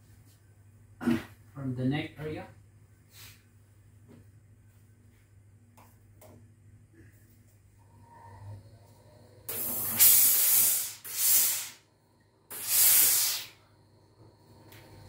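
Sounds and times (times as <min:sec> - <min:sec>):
steam iron hissing: 0:08.0 - 0:11.9, 0:12.5 - 0:13.7.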